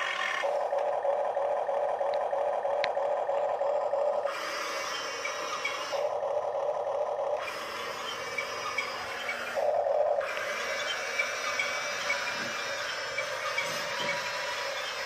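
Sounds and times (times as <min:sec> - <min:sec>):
small electric motors whirring: 0:00.0 - 0:15.0
plastic tracks grinding on wood: 0:07.5 - 0:15.0.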